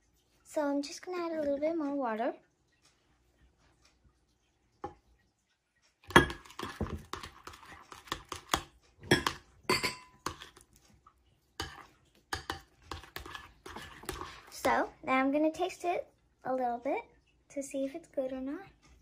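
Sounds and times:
metal spoon stirring in bowl: 6.0 - 14.8.

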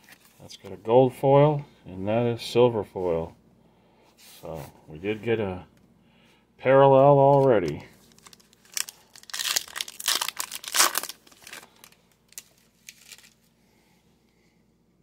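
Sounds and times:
faint clicks of cards handled: 7.3 - 8.6
foil wrapper tearing and crinkling: 8.0 - 13.4.

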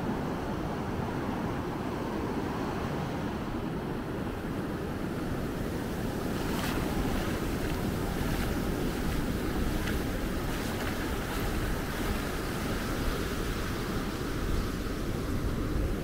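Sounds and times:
wind buffeting microphone: 0.0 - 16.0
surf breaking on beach: 5.6 - 16.0.

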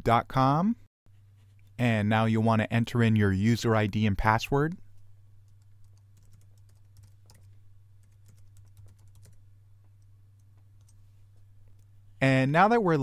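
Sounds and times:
keyboard typing: 5.5 - 9.4, 10.0 - 11.0.

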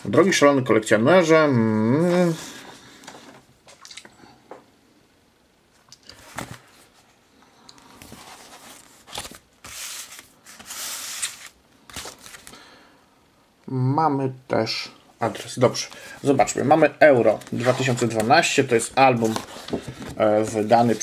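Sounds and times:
paper rustling: 7.9 - 12.6, 17.1 - 21.0.

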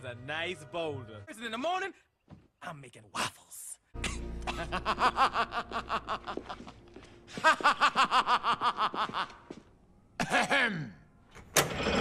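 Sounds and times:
man laughing theatrically: 4.0 - 9.6, 10.2 - 10.7.

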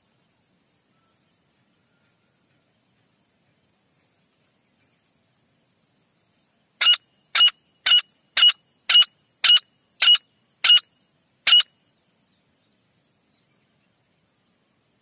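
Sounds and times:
faint steady high tone: 0.1 - 2.6
francolin calling: 6.8 - 12.4.

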